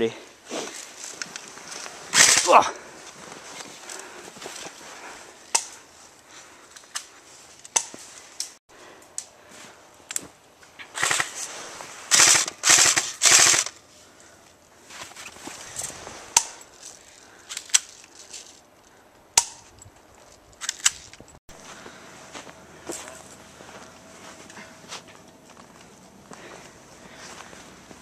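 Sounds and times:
airsoft gun full-auto bursts: 0:12.1 - 0:13.7.

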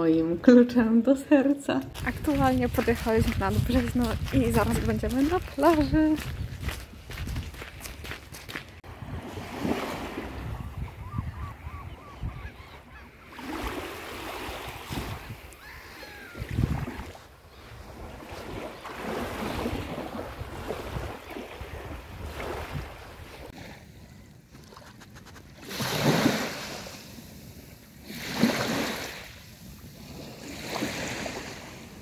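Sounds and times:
wind blowing across microphone: 0:01.8 - 0:12.6, 0:14.8 - 0:18.6
small waves washing onto beach: 0:08.8 - 0:10.5, 0:13.4 - 0:23.8, 0:24.5 - 0:32.0.

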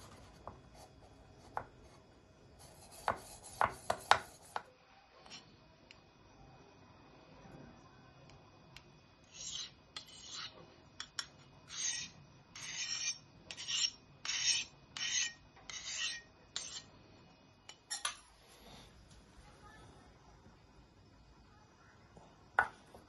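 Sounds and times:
knife scraping on sharpening bar: 0:09.3 - 0:16.9, 0:17.7 - 0:18.2.

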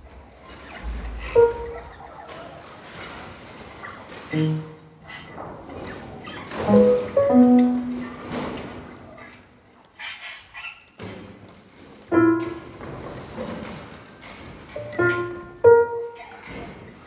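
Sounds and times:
slow sparse piano music: 0:00.9 - 0:02.5, 0:04.2 - 0:05.3, 0:06.5 - 0:09.0, 0:12.1 - 0:13.6, 0:14.7 - 0:17.0.

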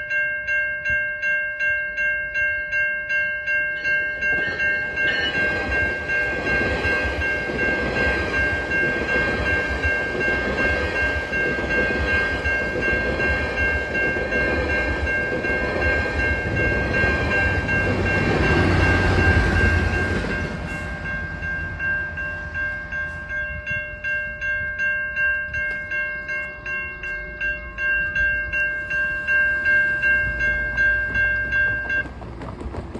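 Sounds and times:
crossing warning bells ringing: 0:00.0 - 0:32.9
passing train: 0:00.0 - 0:32.9
diesel locomotive passing: 0:03.7 - 0:32.9.

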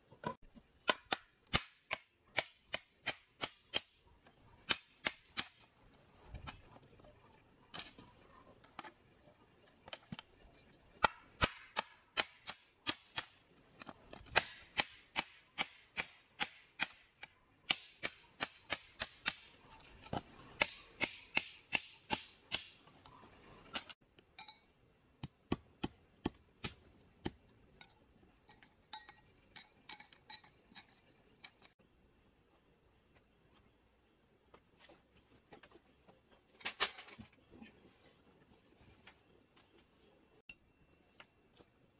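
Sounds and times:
hammer pounding bamboo: 0:14.3 - 0:19.5.

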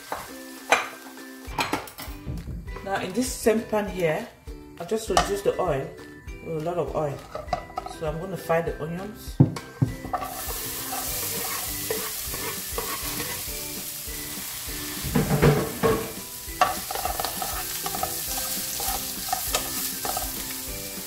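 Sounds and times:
onions sizzling in oil: 0:00.0 - 0:01.5, 0:10.0 - 0:21.0
utensil scraping and knocking pan: 0:07.2 - 0:08.0, 0:09.5 - 0:13.5, 0:15.0 - 0:20.5.

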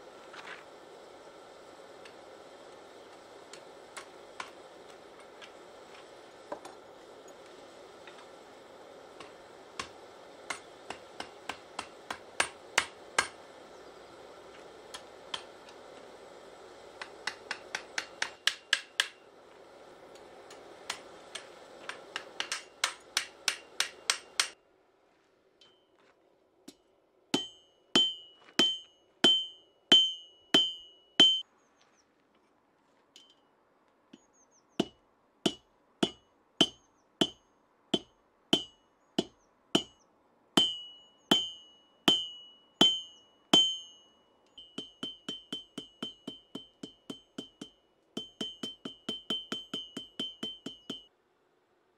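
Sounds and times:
hammer striking anvil: 0:09.2 - 0:13.4, 0:17.0 - 0:19.2, 0:20.5 - 0:24.6, 0:27.4 - 0:31.4, 0:40.6 - 0:51.1
high anvil ring: 0:27.4 - 0:31.4, 0:40.6 - 0:51.1.

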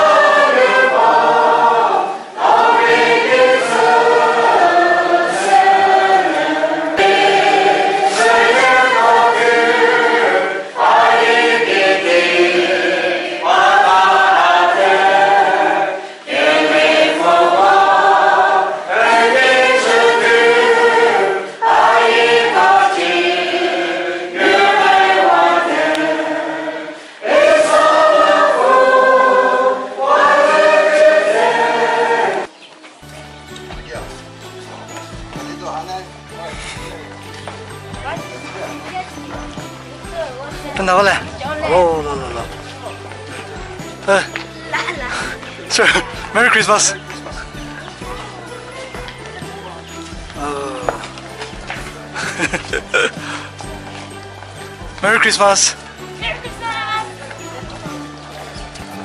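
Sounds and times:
congregation singing a hymn: 0:00.0 - 0:32.6, 0:39.5 - 0:48.6.

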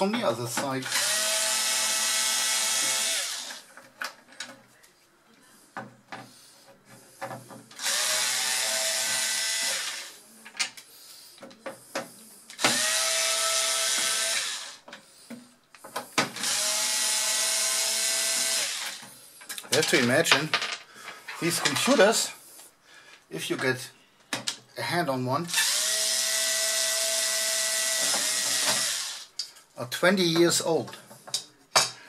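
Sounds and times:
power screwdriver whirring: 0:00.9 - 0:03.6, 0:07.8 - 0:10.1, 0:12.6 - 0:14.8, 0:16.4 - 0:19.0, 0:25.5 - 0:29.3.

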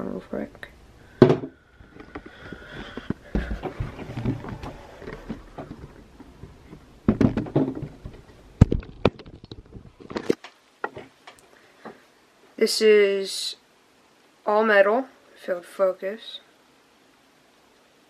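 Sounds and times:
thump on table: 0:01.2 - 0:01.6.

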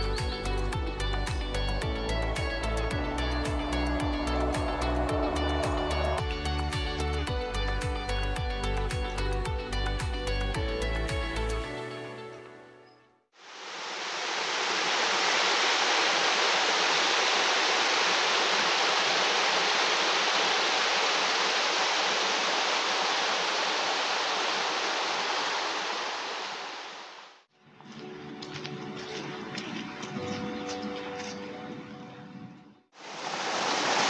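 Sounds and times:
stream rushing down cascade: 0:00.0 - 0:09.3, 0:13.4 - 0:27.4, 0:33.0 - 0:34.0.

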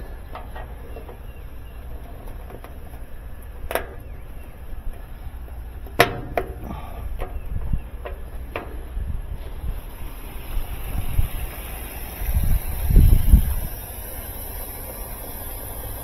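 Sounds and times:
wind rumble on microphone: 0:02.8 - 0:14.0.

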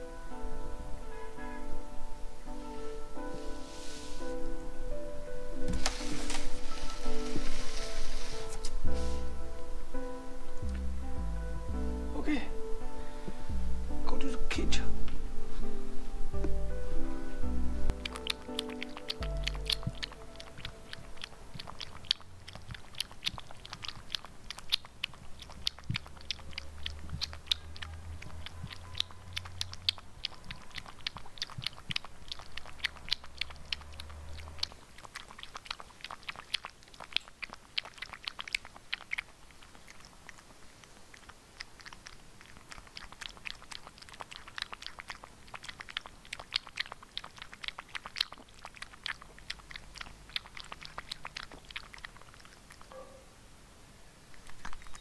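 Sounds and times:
cat lapping water: 0:17.9 - 0:52.9, 0:54.3 - 0:55.0.

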